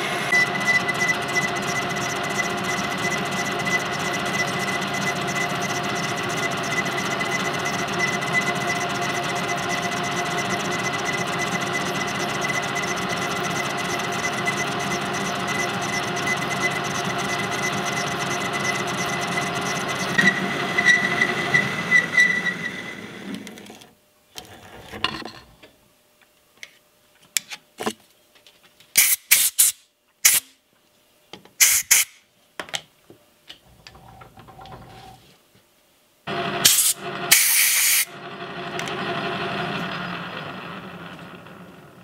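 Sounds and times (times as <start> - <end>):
metal lathe boring steel: 0.0 - 23.8, 36.3 - 42.0
lathe spindle running: 0.0 - 23.9, 36.3 - 42.0
short bursts of hiss: 29.0 - 30.6, 31.6 - 32.2, 36.6 - 38.1.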